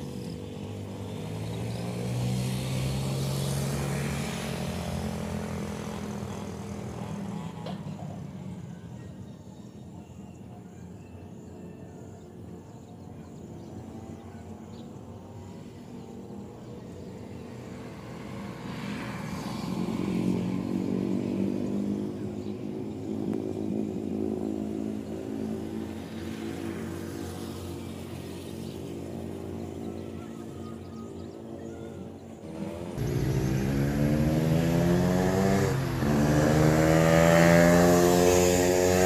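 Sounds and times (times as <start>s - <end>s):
motorcycle engine passing: 0.1s - 8.5s, 17.6s - 30.8s, 32.4s - 39.0s.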